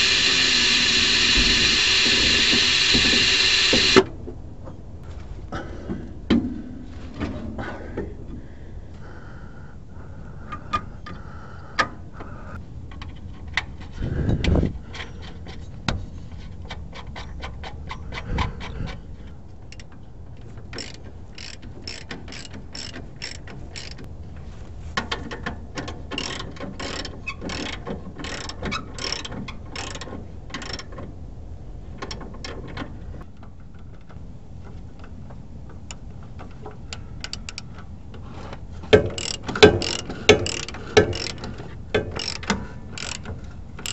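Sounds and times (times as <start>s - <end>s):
ratchet wrench clicking: 0.0s - 4.0s, 20.7s - 24.1s, 26.2s - 30.0s, 30.6s - 30.9s, 37.2s - 37.7s, 39.0s - 43.9s.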